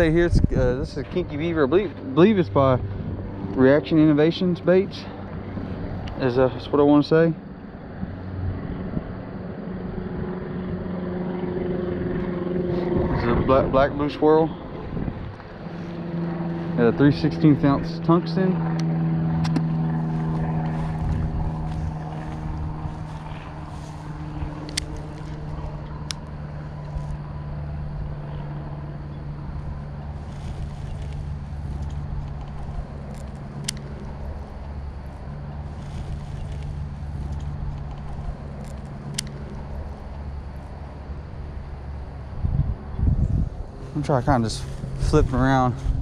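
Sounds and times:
wind rumble on microphone: 0.0 - 4.5, 7.9 - 46.0
distant engine drone: 0.0 - 46.0
sharp clicks: 24.6 - 27.0, 31.8 - 34.0, 37.3 - 39.6.

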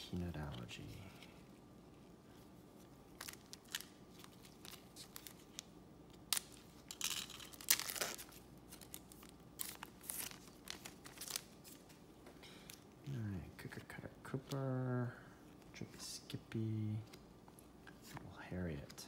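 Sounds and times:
cards rustling and snapping: 2.8 - 12.0
wrapper tearing and crinkling: 3.1 - 11.9.

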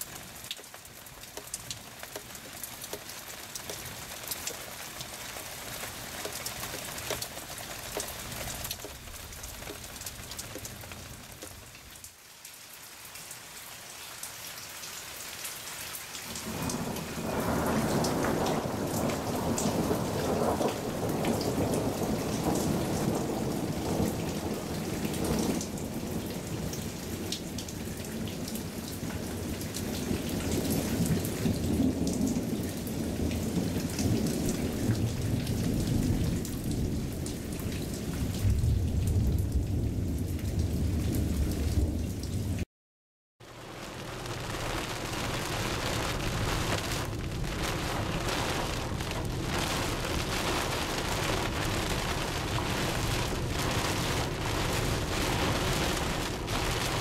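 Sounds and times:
raindrop ticks: 0.0 - 12.2, 16.2 - 40.4, 43.8 - 57.0
steady rain hiss: 0.0 - 42.6, 43.4 - 57.0
rolling thunder: 16.3 - 42.6, 43.9 - 57.0.

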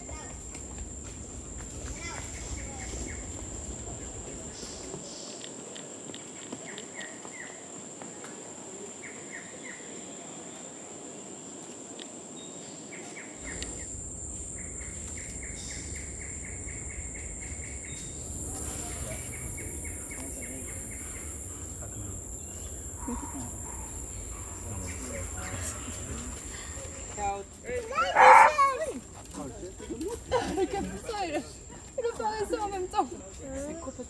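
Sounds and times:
birds chirping: 0.0 - 11.6, 12.2 - 28.8
high-pitched insect drone: 12.3 - 28.9.

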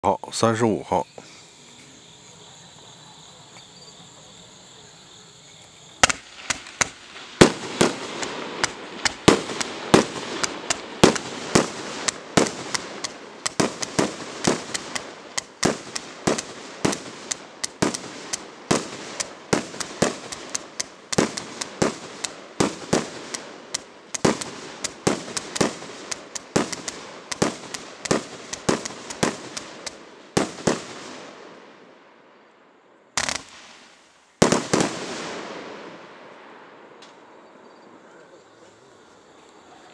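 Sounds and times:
constant hiss: 0.0 - 39.9
firework battery shots: 5.9 - 31.6, 33.2 - 36.2.

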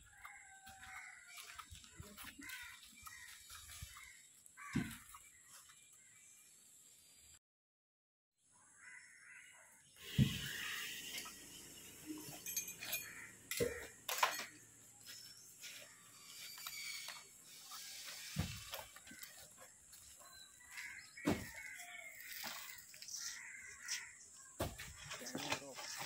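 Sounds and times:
birds calling: 0.0 - 6.5, 8.6 - 26.0
metal buckle clinking: 12.3 - 14.6.

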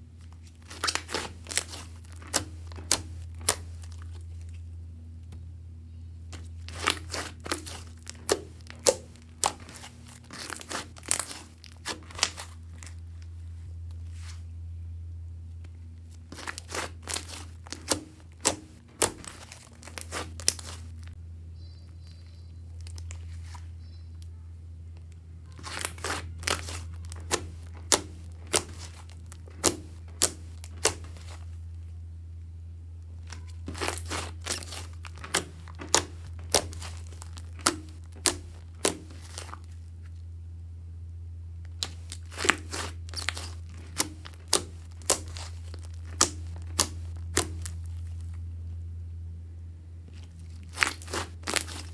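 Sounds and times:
steady low hum: 0.0 - 51.9
sticky slime clicks and pops: 41.7 - 47.8.

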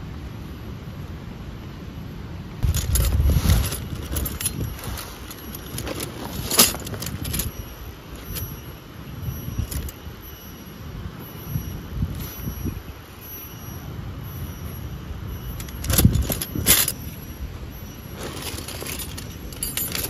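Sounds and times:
rustling of nylon bag: 2.6 - 8.7, 15.6 - 20.0
metal tent pegs clinking: 2.6 - 20.0.

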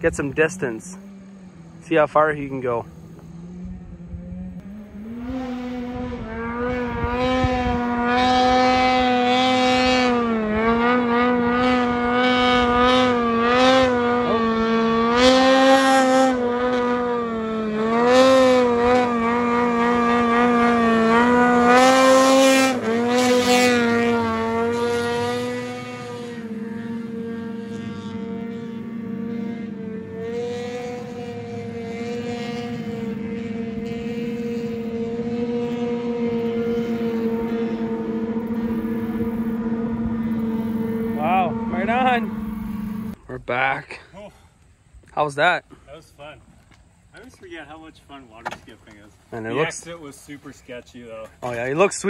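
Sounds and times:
snowmobile engine revving: 0.0 - 43.2, 49.3 - 50.8.

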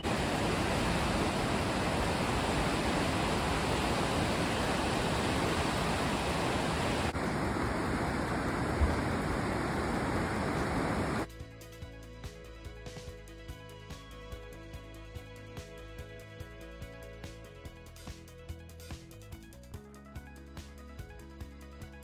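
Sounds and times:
river rushing: 0.0 - 11.3.

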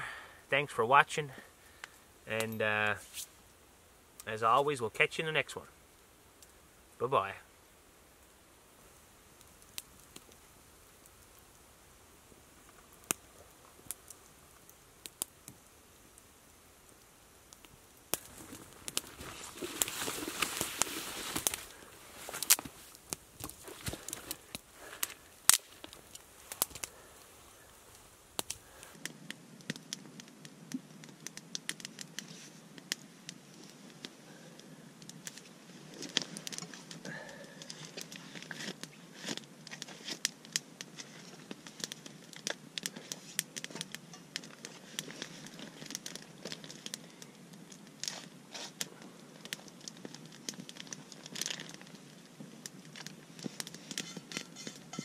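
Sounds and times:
campfire crackling and snapping: 0.0 - 55.0
pan and utensils handled: 53.9 - 55.0.

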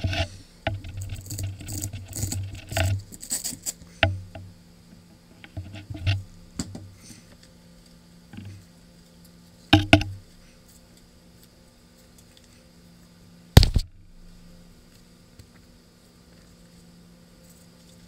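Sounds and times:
sharp knocks: 9.8 - 10.2, 13.6 - 14.0
tools taps and clicks: 9.8 - 10.2
loud thump: 13.6 - 14.0.

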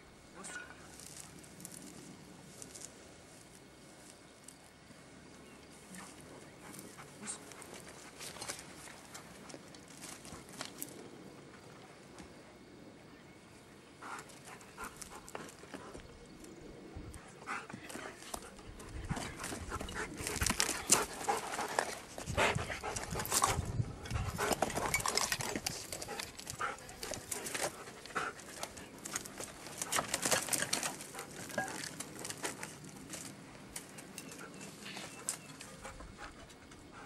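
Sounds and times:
stones and wood crunching underfoot: 6.0 - 11.0, 17.9 - 35.5
dog panting: 17.3 - 30.0, 34.4 - 37.0.

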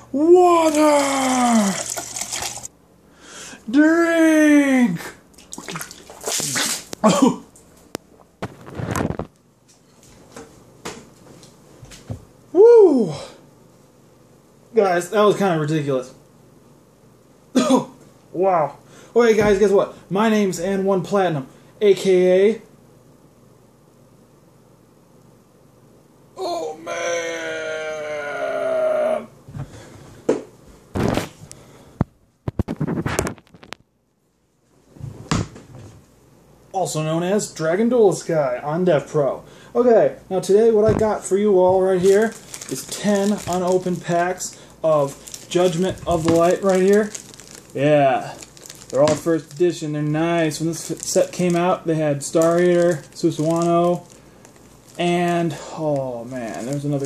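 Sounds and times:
man coughing and spluttering: 5.5 - 7.5, 17.6 - 18.0.

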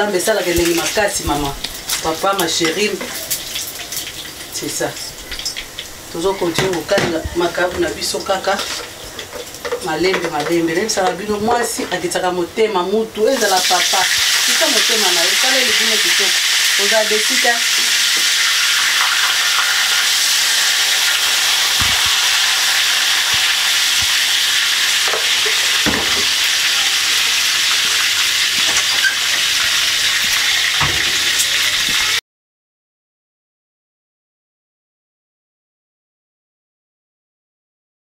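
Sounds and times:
food sizzling in hot oil: 0.1 - 12.0, 13.1 - 32.2
dull knocks: 21.7 - 22.5, 25.1 - 26.5, 30.8 - 31.4.

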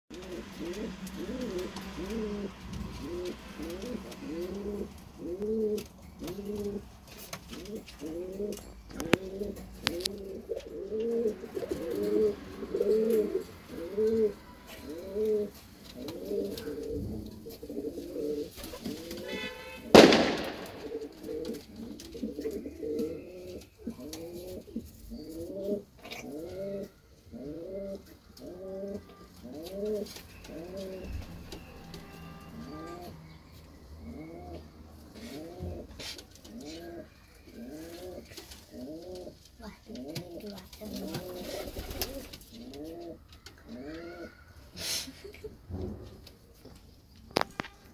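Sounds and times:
pigeons cooing: 0.1 - 45.8
sharp knock: 20.0 - 21.2.

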